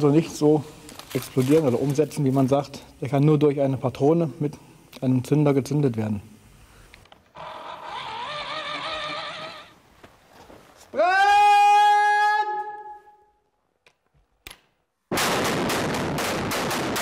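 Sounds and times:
man shouting: 0:10.9 - 0:13.2
mine blast with cracks: 0:15.1 - 0:17.0.

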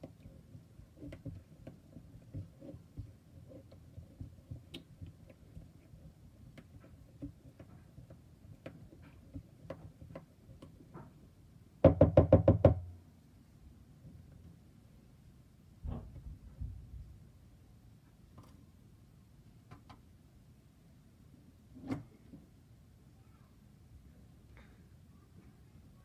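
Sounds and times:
spatula stirring thick glue: 0:00.0 - 0:11.9.

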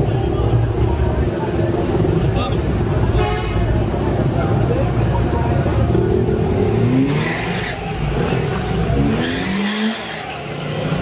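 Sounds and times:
car engine revving: 0:03.8 - 0:11.0.

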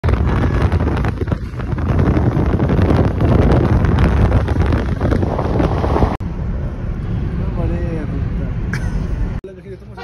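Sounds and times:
wind buffeting microphone: 0:00.0 - 0:06.7
car and tyres rumbling: 0:00.0 - 0:09.4.

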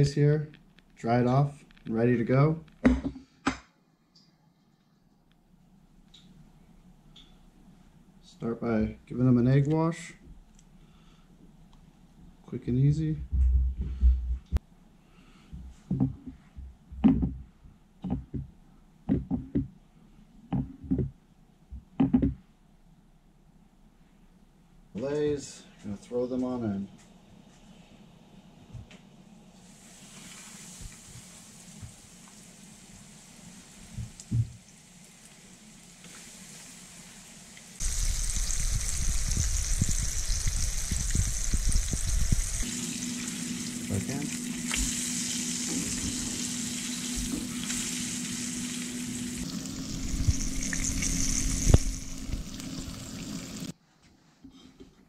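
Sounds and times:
fish sizzling in hot oil: 0:29.6 - 0:34.0, 0:34.6 - 0:53.7
oil crackling and popping: 0:37.6 - 0:53.7.

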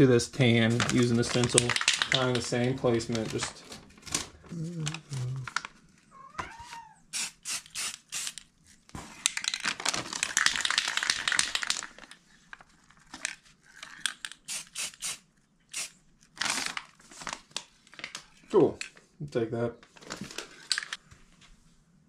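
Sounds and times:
spray paint can hissing: 0:07.1 - 0:08.4, 0:14.5 - 0:15.9.

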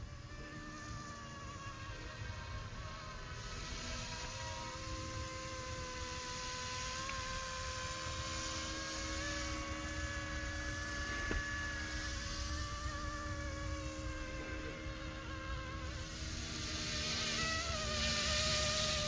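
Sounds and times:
rc helicopter motor whine: 0:00.0 - 0:19.0.

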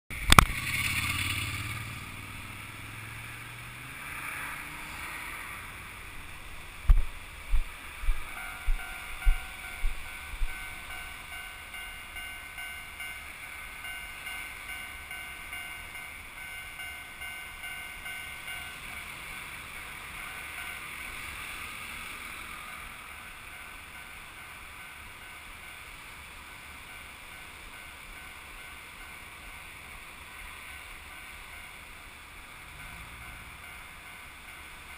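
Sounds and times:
wind on microphone: 0:06.2 - 0:10.9.

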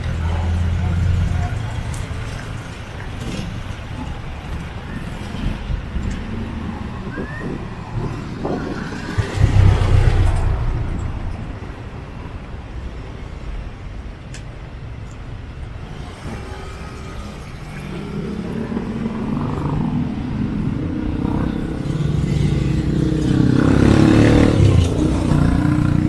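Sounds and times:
traffic hum: 0:00.0 - 0:26.0
vehicle engine passing by: 0:06.4 - 0:11.5, 0:15.9 - 0:26.0.

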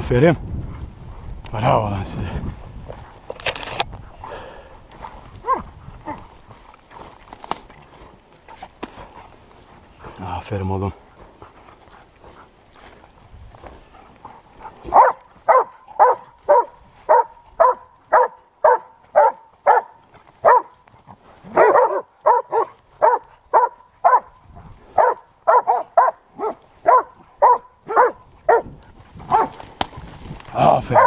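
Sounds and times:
dog barking: 0:05.4 - 0:06.2, 0:14.6 - 0:20.8, 0:21.5 - 0:28.7, 0:29.3 - 0:29.5.

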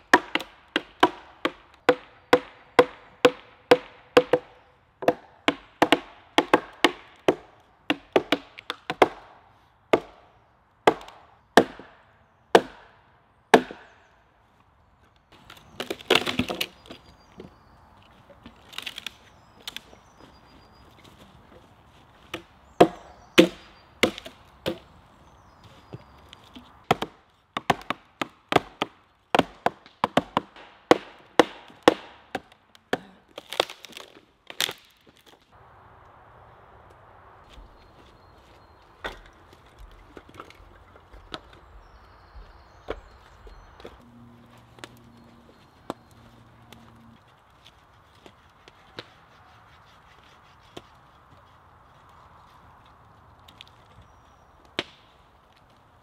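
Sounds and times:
axe and mallet knocking logs: 0:00.1 - 0:14.0, 0:15.5 - 0:17.1, 0:22.3 - 0:24.9, 0:26.6 - 0:34.9, 0:39.0 - 0:41.6, 0:54.8 - 0:55.1
wood splintering crackle: 0:15.3 - 0:17.1, 0:18.0 - 0:20.2, 0:31.5 - 0:35.5, 0:43.8 - 0:51.0.

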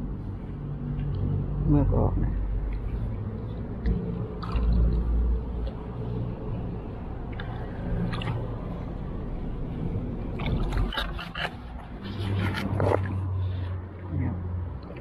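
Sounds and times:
low hum: 0:00.0 - 0:15.0
water sloshing and splashing: 0:02.5 - 0:15.0
fish splashing: 0:03.3 - 0:05.8, 0:07.0 - 0:13.7.

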